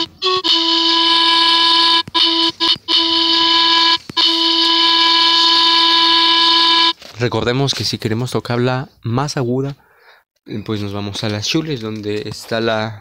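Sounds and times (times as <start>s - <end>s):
synthesized panpipe notes: 0.0s - 7.0s.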